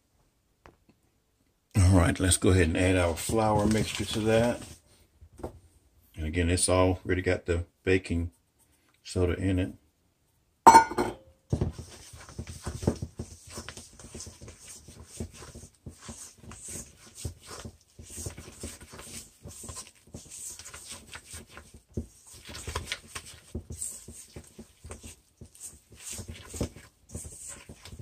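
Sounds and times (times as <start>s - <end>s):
spatula scraping metal bowl: 13.3s - 28.0s.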